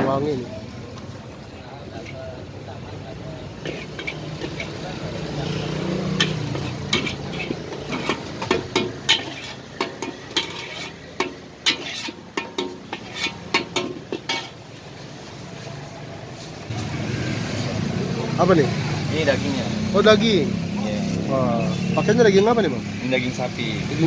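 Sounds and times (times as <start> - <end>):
metal spatula scraping wok: 3.4 - 17.6.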